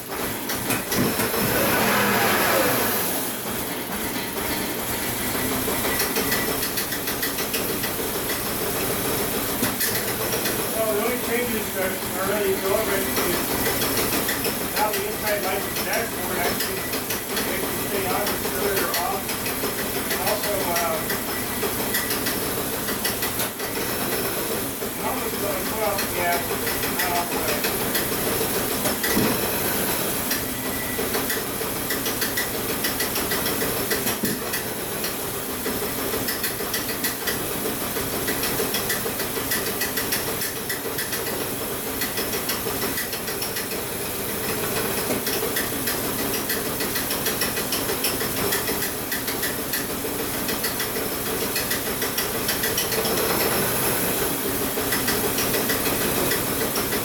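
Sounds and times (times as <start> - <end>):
car engine idling: 0.0 - 57.0.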